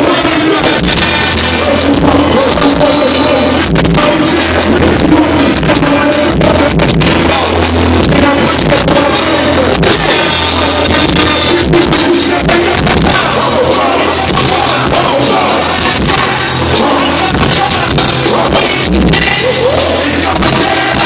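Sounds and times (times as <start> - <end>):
booming bass beat: 0.0 - 21.0
person rapping into microphone: 0.0 - 21.0.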